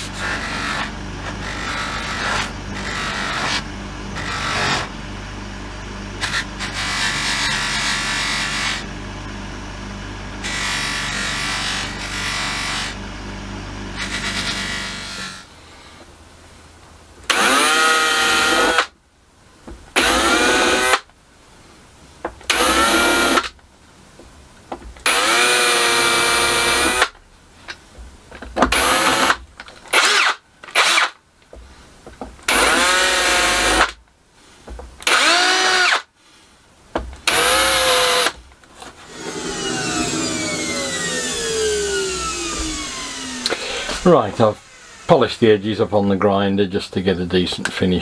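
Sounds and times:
cordless drill drilling plastic: 17.3s - 18.9s, 20.0s - 21.1s, 22.5s - 23.5s, 25.0s - 27.2s, 28.7s - 31.2s, 32.5s - 34.0s, 35.0s - 36.1s, 37.2s - 38.4s, 39.0s - 45.3s
falling whine: 39.0s - 46.1s.

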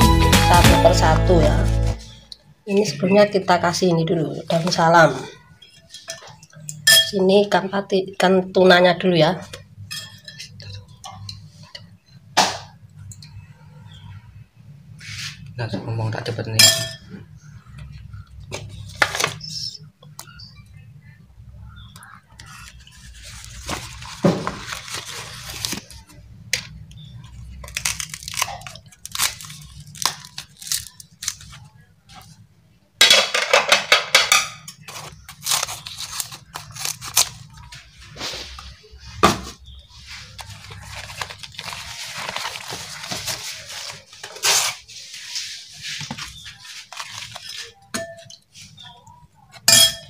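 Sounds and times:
leaf rustling and crinkling: 22.5s - 26.2s, 27.5s - 32.3s, 34.9s - 38.6s, 39.9s - 47.8s
leaf tearing: 27.6s - 31.6s, 34.9s - 37.6s.

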